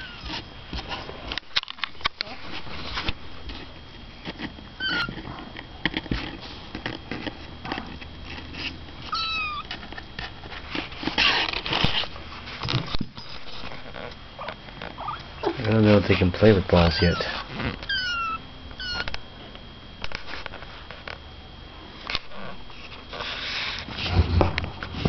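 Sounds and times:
kittens mewing: 0.0 - 0.4, 4.8 - 5.2, 9.1 - 9.7, 14.4 - 15.7, 16.7 - 19.2
kittens rustling in cardboard box: 0.0 - 14.0, 14.6 - 19.1, 22.1 - 25.0.

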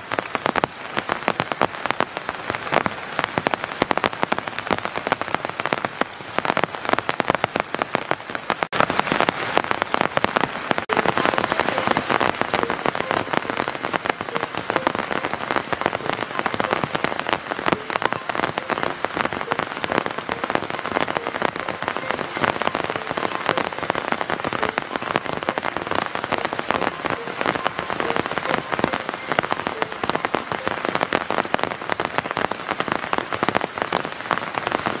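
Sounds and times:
heavy rain on foliage: 0.0 - 35.0.

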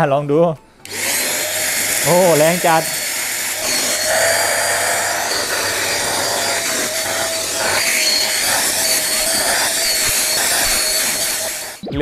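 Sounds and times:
handheld vacuum cleaner whining: 0.8 - 11.9.

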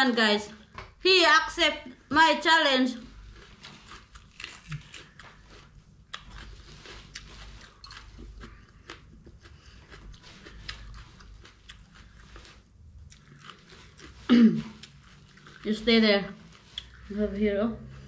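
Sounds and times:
person chewing crunchy pepper: 3.1 - 15.7, 16.4 - 17.1.

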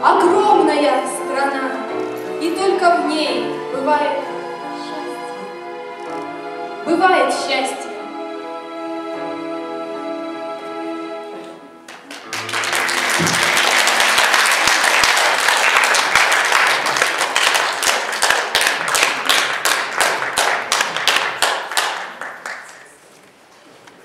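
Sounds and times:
audience applause: 11.9 - 23.0.

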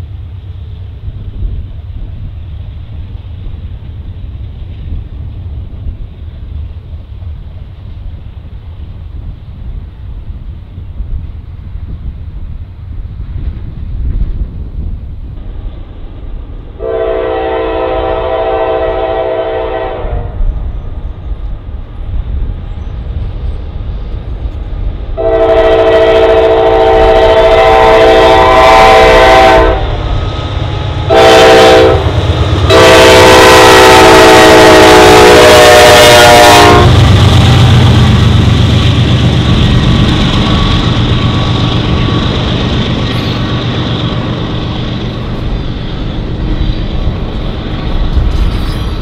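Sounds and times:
locomotive air horn blasts: 16.8 - 20.4, 25.2 - 30.0, 31.0 - 37.1.

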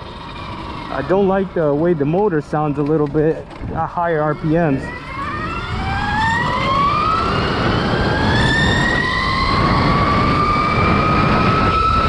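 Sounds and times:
electric motor whining: 0.0 - 12.0
wind on microphone: 3.4 - 12.0.

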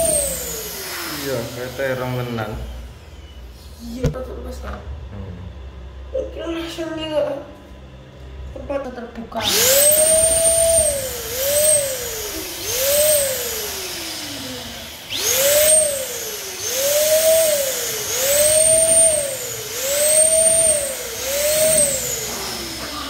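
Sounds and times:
balloon pump motor whine: 0.0 - 4.2, 9.4 - 23.0.

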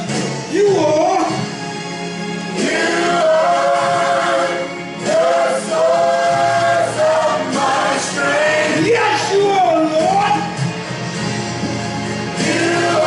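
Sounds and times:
gospel choir singing: 2.4 - 10.4, 11.5 - 13.0.

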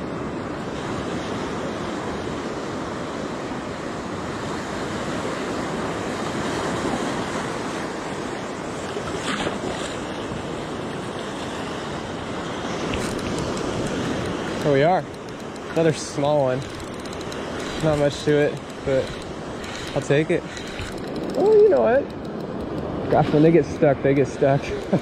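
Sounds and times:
ocean surf: 0.0 - 25.0
wind buffeting microphone: 0.7 - 25.0.

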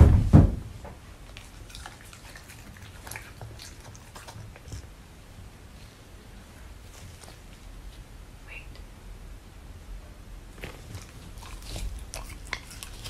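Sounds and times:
dog chewing meat: 1.2 - 5.2, 10.6 - 13.0.

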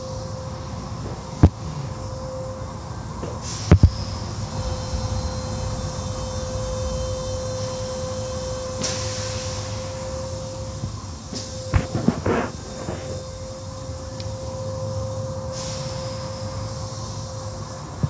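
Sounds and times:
car wash machinery rumble: 0.0 - 18.0
rush of hiss: 3.4 - 14.1, 14.7 - 18.0.

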